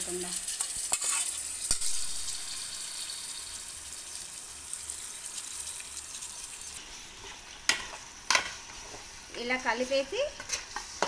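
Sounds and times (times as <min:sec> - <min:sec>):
meat sizzling in hot oil: 0:00.0 - 0:11.0.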